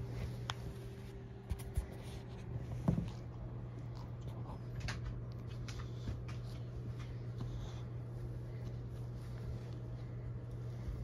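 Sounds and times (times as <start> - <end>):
kitten rustling on a blanket: 0.0 - 2.9
steady low hum: 0.0 - 11.0.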